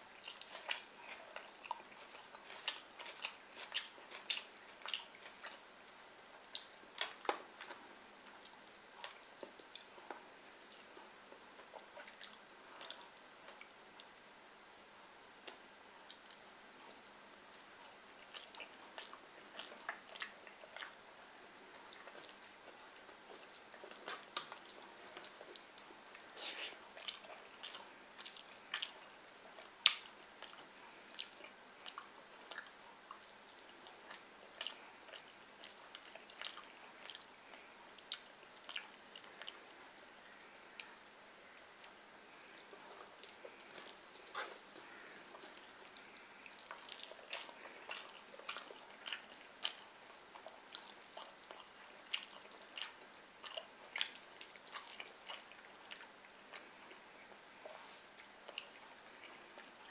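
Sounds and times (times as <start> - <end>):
fingers squishing food: 0.1 - 57.0
wet chewing: 0.1 - 57.1, 58.4 - 59.9
lip smacks: 15.1 - 57.8.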